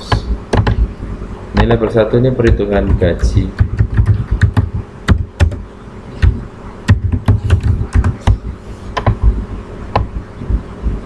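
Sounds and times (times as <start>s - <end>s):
typing on computer keyboard: 3.6s - 5.6s, 6.2s - 8.4s.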